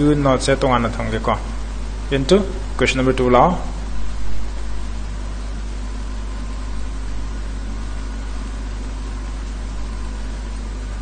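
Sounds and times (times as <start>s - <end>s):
fan hiss: 0.0s - 11.0s
low electrical hum: 0.0s - 11.0s.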